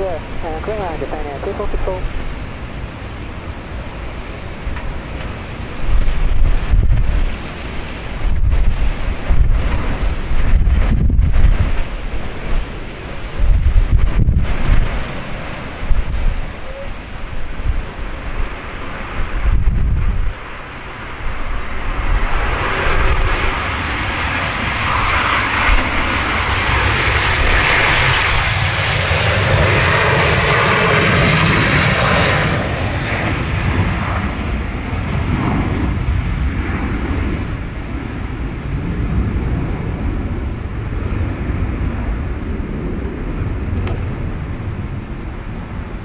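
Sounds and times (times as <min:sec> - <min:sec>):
jet engines roaring: 0:00.0 - 0:46.0
wind rumble on microphone: 0:00.0 - 0:46.0.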